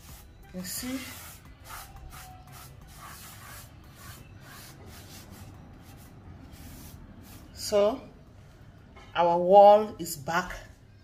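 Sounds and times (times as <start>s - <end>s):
cloth rubbing on a wall: 0.0s - 7.7s.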